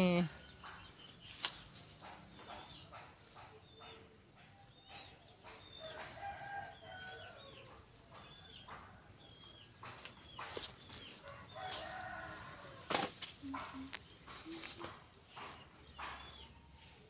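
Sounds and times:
chickens chirping and peeping: 0.1s - 17.0s
distant rooster crowing: 5.7s - 7.9s, 11.2s - 12.9s.

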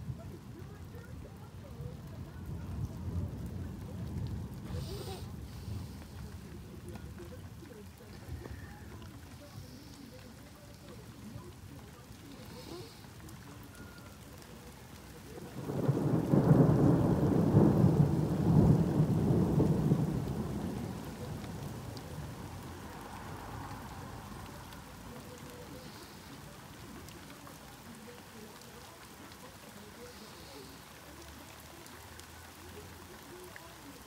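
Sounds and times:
steady rain: 0.0s - 34.0s
thunder rolling: 1.2s - 7.6s, 15.2s - 25.0s.

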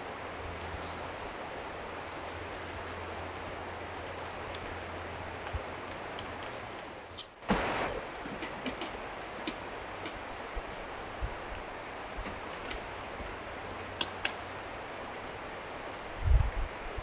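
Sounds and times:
steady hiss: 0.0s - 17.0s
small clicks and ticks: 4.2s - 6.9s
brief loud burst: 7.4s - 8.1s.

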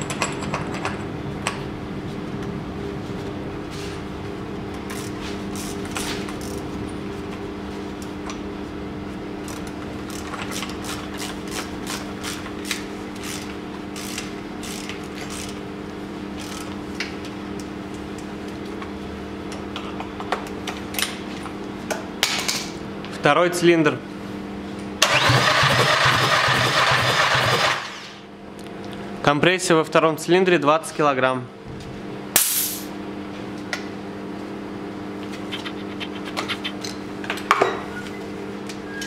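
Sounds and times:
ratchet and hand tools clicking: 14.0s - 15.6s
low multi-tone hum: 28.0s - 39.0s.

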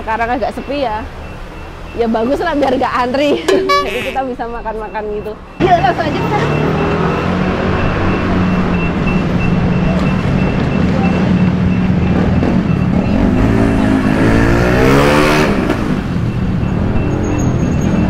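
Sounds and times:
vehicle engines running: 0.0s - 18.0s
engine revving and passing: 5.6s - 18.0s.

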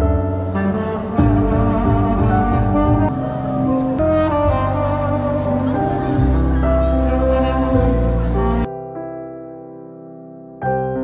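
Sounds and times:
melody over bass through speaker: 0.0s - 8.7s.

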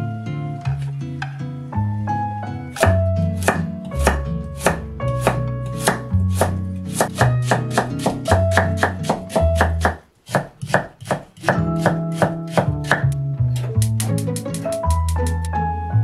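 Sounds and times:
background music: 0.0s - 10.0s, 11.4s - 16.0s
knife chopping on cutting board: 2.8s - 13.2s.

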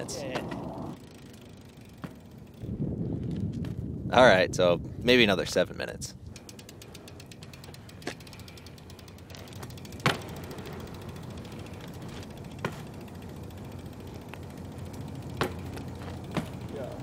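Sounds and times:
bike tyres rolling on concrete: 0.0s - 17.0s
bike knocking on pavement: 0.2s - 2.6s, 6.4s - 17.0s.

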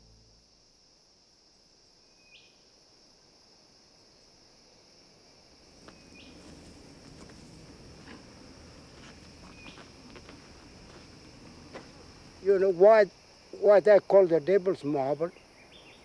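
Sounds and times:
cricket-like trill: 0.0s - 3.2s, 5.4s - 16.0s
short insect chirp: 0.0s - 16.0s
low outdoor rumble: 5.7s - 12.8s.

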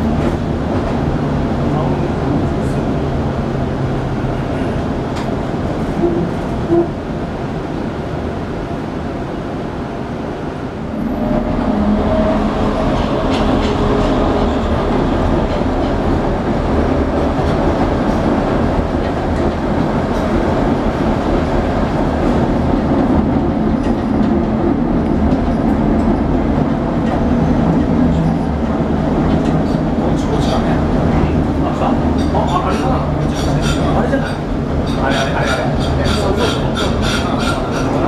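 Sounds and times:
streetcar ride hum: 0.0s - 38.0s
steel wheels rolling on rail: 10.7s - 38.0s.

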